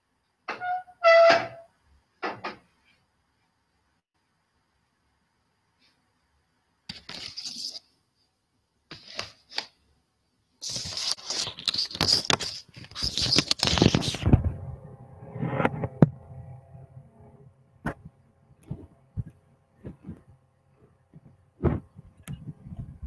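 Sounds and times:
rustling with sharp clicks: 0:10.6 - 0:14.4.

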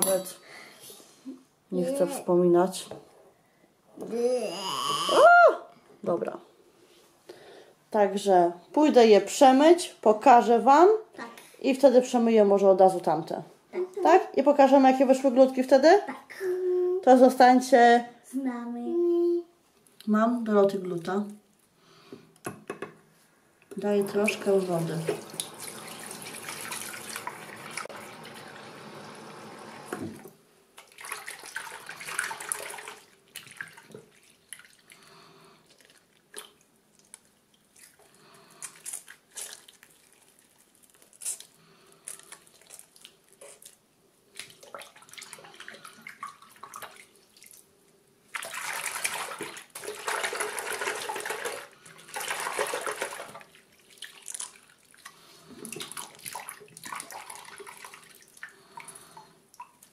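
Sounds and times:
tap running into a sink: 0:29.8 - 0:30.3.

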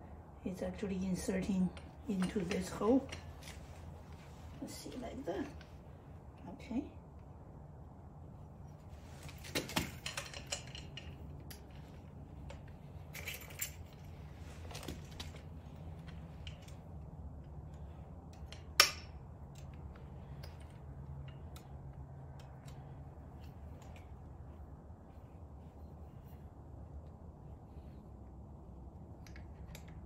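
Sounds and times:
low steady hum: 0:00.0 - 0:30.0
metallic clicks and clinks: 0:09.2 - 0:16.9
keys jangling: 0:13.0 - 0:15.4.

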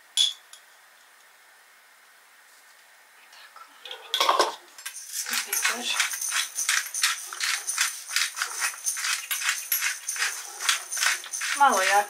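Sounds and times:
pepper shaker rattling: 0:04.8 - 0:12.0.

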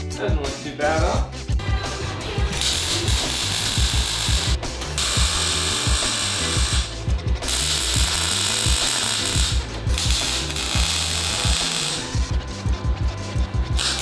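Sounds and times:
music with thumping beat: 0:00.0 - 0:14.0
welding arc crackling: 0:02.5 - 0:12.3, 0:13.7 - 0:14.0.

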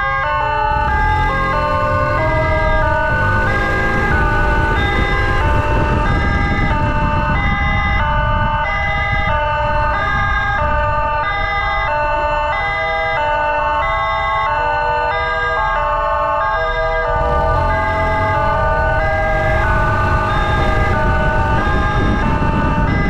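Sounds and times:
emergency siren hi-lo pattern: 0:00.0 - 0:23.0
motorcycle engine rumble: 0:00.6 - 0:12.7, 0:17.0 - 0:23.0
wind noise: 0:00.7 - 0:13.6, 0:17.1 - 0:23.0.

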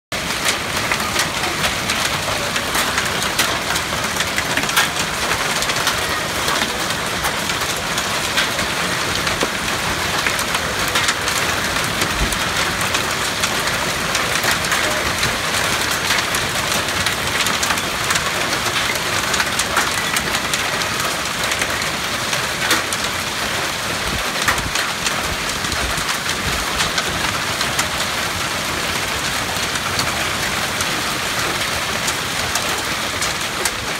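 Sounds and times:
rain hissing: 0:00.2 - 0:22.6
hailstones striking hard surfaces: 0:00.2 - 0:33.9.

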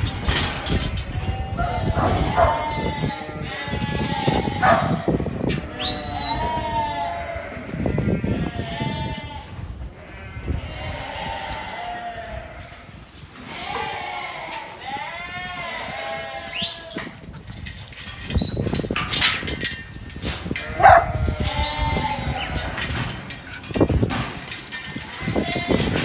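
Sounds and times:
knocks and clatter: 0:00.0 - 0:01.3, 0:17.0 - 0:26.0
sheep bleating: 0:01.2 - 0:17.1, 0:20.5 - 0:23.0, 0:25.0 - 0:26.0.

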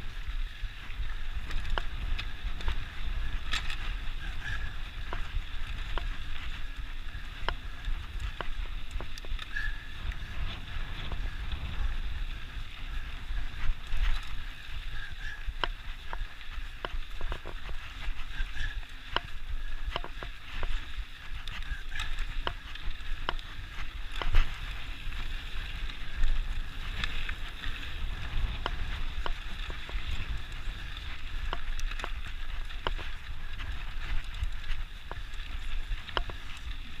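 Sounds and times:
bike clicks and rattles: 0:00.0 - 0:37.0
bike tyres crunching over gravel: 0:00.0 - 0:37.0
low wind rumble: 0:00.0 - 0:37.0.

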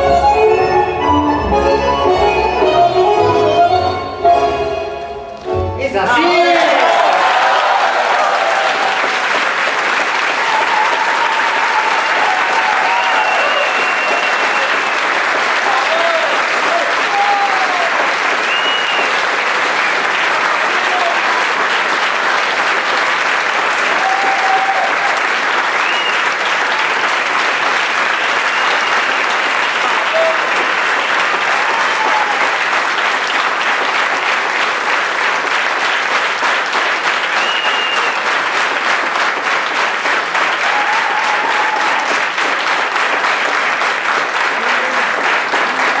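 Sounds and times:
shouts and cheers: 0:06.0 - 0:09.2, 0:10.3 - 0:14.9, 0:15.6 - 0:19.2, 0:20.5 - 0:21.3, 0:23.8 - 0:25.2, 0:29.8 - 0:30.5, 0:31.4 - 0:32.6, 0:40.5 - 0:42.3
audience applauding: 0:06.1 - 0:46.0.

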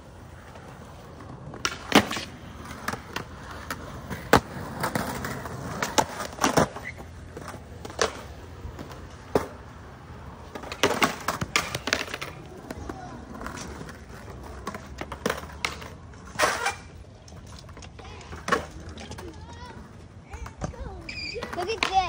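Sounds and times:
skateboard clacks: 0:00.0 - 0:22.0
skateboards rolling on concrete: 0:00.0 - 0:22.0.

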